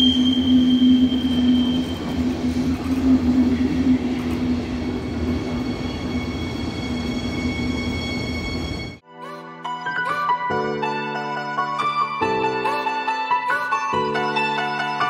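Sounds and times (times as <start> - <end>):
high wheel squeal: 0.0 - 9.0
train wheels rumbling on rail: 0.0 - 9.0.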